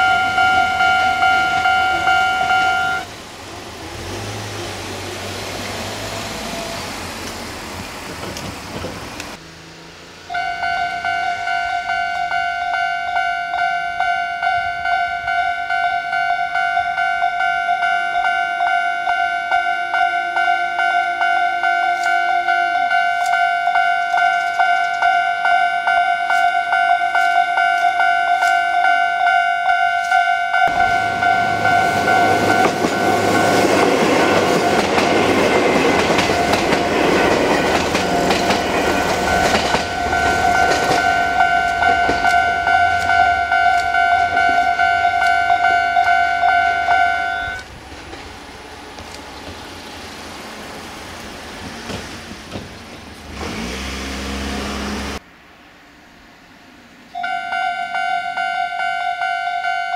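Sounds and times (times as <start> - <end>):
level crossing warning bell: 0.0 - 3.1, 10.3 - 47.7, 57.2 - 59.9
train wheels clattering: 30.7 - 46.2, 51.6 - 53.6.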